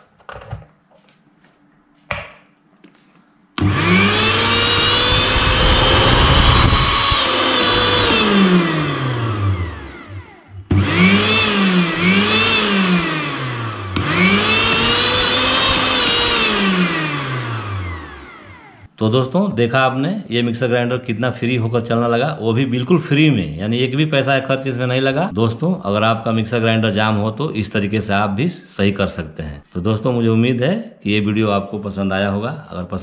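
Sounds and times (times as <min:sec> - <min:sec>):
mixer grinder motor whining: 0:03.6 - 0:18.9.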